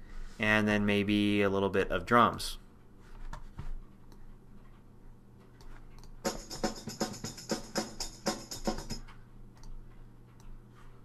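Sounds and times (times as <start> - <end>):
drum loop with jingling hits: 6.2 - 9.1.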